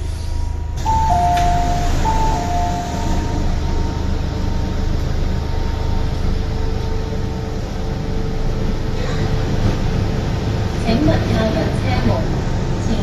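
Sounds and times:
electric train motors whining: 0:00.0 - 0:12.8
low rumble of train car: 0:00.0 - 0:13.0.

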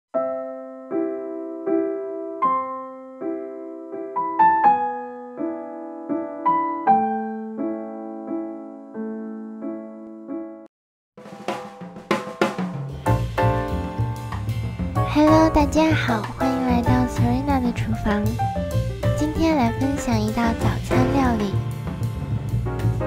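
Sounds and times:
soft piano chords: 0:00.2 - 0:10.7, 0:13.1 - 0:23.0.

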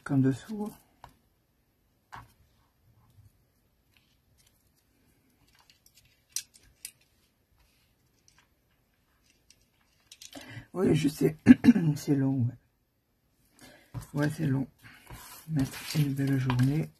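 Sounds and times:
paper and card handling: 0:14.0 - 0:16.9.

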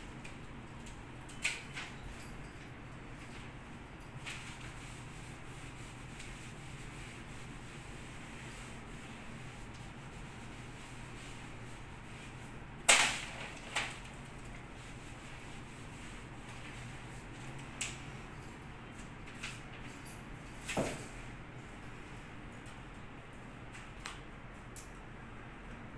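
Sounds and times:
sanding pad rubbing on wall: 0:04.6 - 0:12.4.

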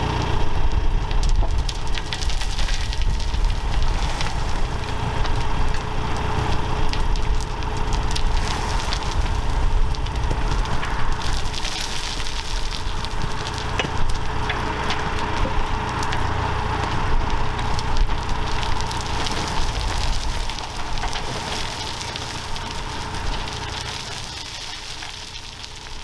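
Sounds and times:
diesel engine humming: 0:00.0 - 0:26.0
soil and stones pouring and rattling: 0:00.0 - 0:26.0.

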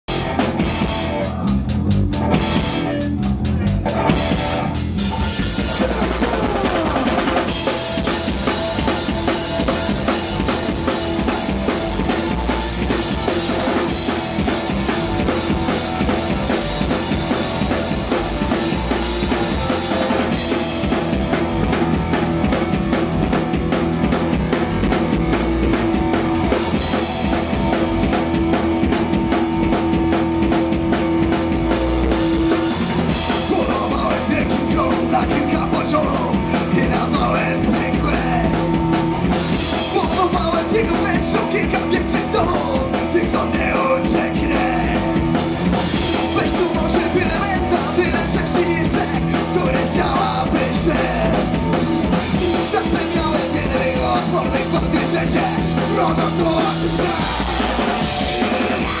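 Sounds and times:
drum kit beat: 0:00.0 - 0:59.0
rock band playing: 0:00.0 - 0:59.0.

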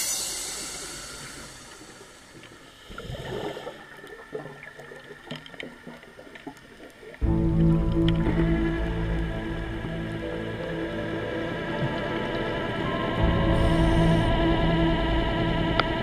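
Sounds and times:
hiss: 0:00.0 - 0:03.8
regulator bubbles gurgling underwater: 0:01.4 - 0:16.0.

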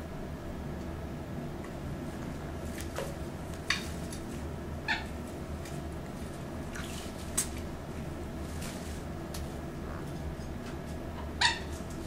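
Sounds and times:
steady low hum: 0:00.0 - 0:12.0
parrot chirps: 0:04.9 - 0:05.1, 0:11.2 - 0:11.8.

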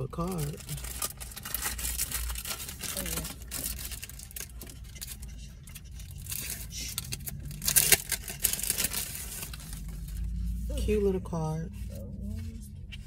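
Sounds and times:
loud plastic crackle: 0:00.2 - 0:10.4
cellophane crinkling and tearing: 0:00.2 - 0:10.6
papery rustling: 0:00.3 - 0:10.9.

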